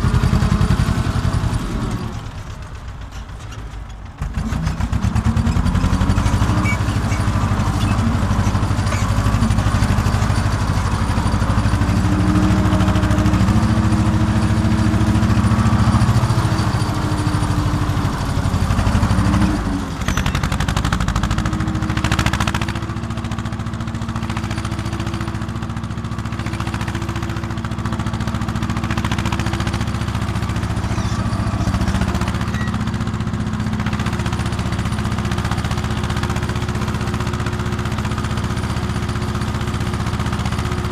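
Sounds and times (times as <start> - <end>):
tractor engine running under load: 0.0 - 40.9.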